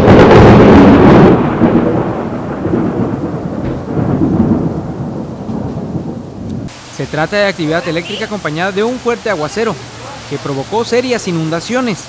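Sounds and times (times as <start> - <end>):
thunder clap and rumble: 0.0 - 9.1
heavy rain on pavement: 0.0 - 12.0.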